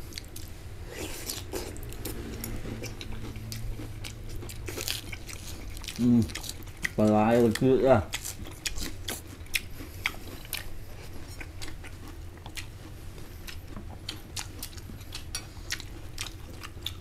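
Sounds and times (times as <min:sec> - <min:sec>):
person chewing crunchy food: 0:00.0 - 0:17.0.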